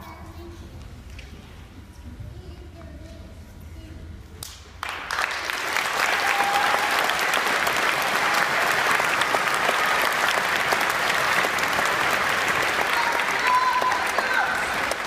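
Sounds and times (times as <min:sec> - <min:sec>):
audience applauding: 0:04.8 - 0:15.0.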